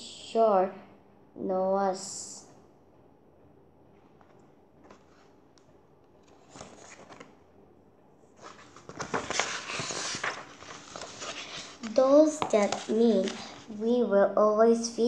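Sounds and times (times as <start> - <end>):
book pages rustling: 4.1 - 5.6, 6.2 - 7.4, 8.3 - 14.0.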